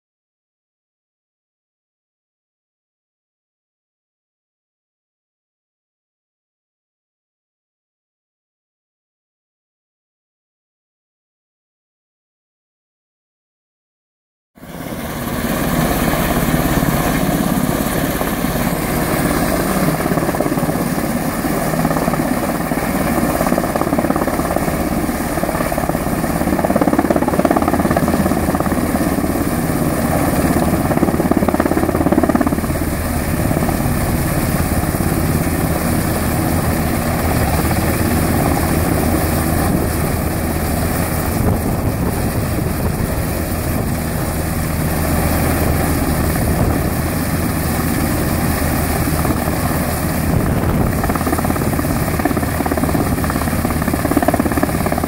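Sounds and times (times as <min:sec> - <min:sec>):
helicopter hovering: 0:14.6 - 0:55.0.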